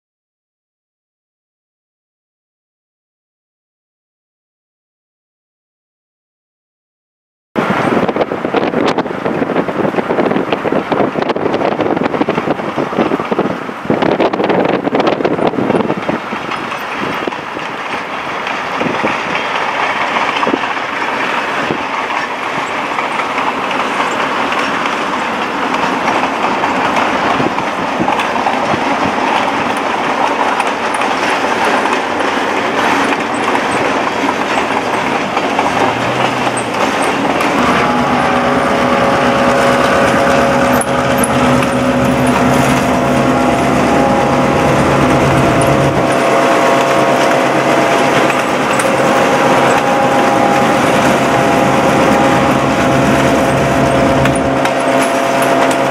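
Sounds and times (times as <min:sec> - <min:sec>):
diesel locomotive engine drone: 0:07.6 - 0:55.9
road noise: 0:07.6 - 0:55.9
rushing wind: 0:07.6 - 0:55.9.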